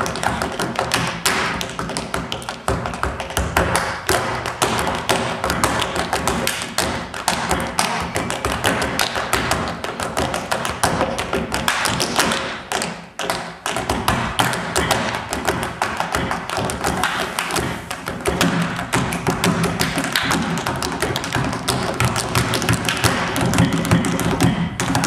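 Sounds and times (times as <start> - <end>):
tap shoes striking stage floor: 0.0 - 25.0
music: 17.6 - 25.0.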